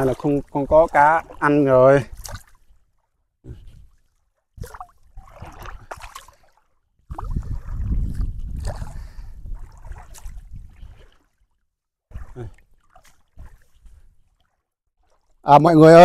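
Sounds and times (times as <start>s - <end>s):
water splashing and sloshing: 0.0s - 16.0s.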